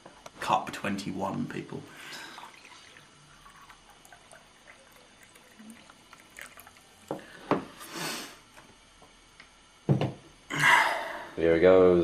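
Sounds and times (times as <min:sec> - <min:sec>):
coffee pouring into cup: 0:02.0 - 0:07.9.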